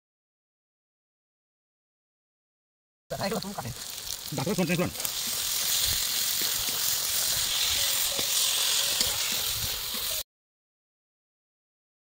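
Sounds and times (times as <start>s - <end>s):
vegetables sizzling in hot oil: 3.1s - 10.2s.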